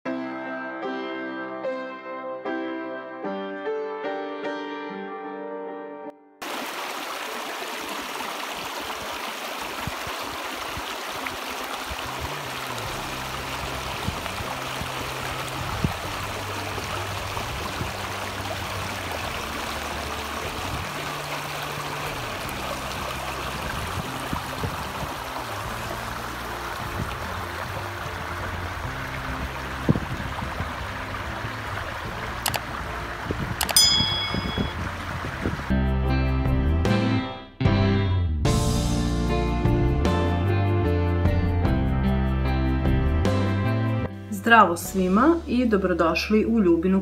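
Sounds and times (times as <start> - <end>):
stream running over rocks: 6.4 - 35.7.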